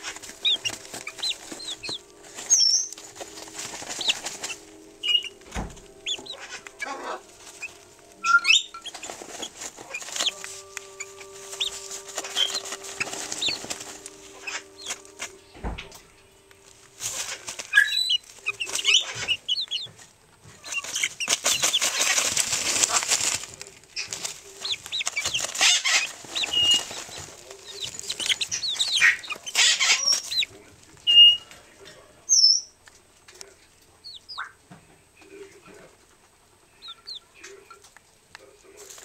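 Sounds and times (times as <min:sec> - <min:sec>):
chicken wings flapping: 0:00.0 - 0:08.0, 0:08.7 - 0:15.4, 0:16.9 - 0:31.5
chicken loud sharp calls: 0:00.0 - 0:31.6
chicks chirping and peeping: 0:00.0 - 0:39.0.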